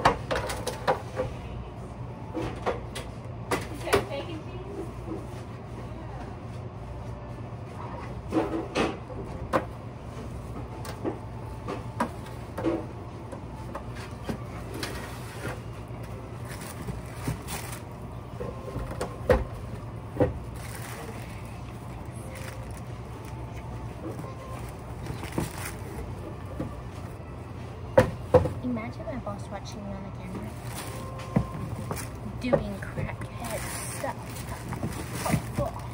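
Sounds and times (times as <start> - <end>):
steady low hum: 0.0 - 35.9
items being handled: 2.2 - 35.9
plastic bags rustling: 14.0 - 27.3, 30.2 - 35.9.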